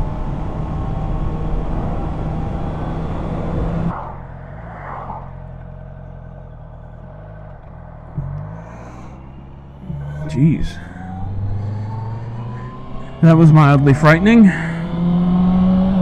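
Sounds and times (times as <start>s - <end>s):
wind rushing: 3.4s - 6.0s
motorcycle engine running: 5.3s - 16.0s.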